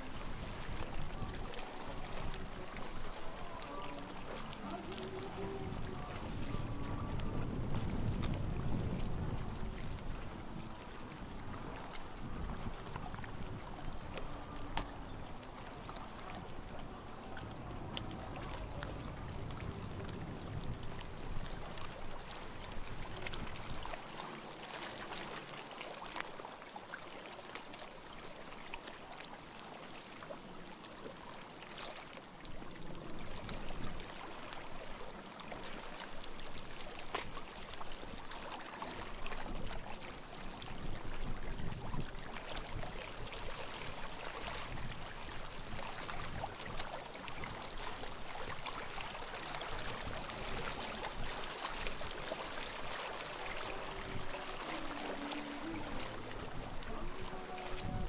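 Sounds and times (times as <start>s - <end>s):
waves lapping at shore: 0.0s - 58.0s.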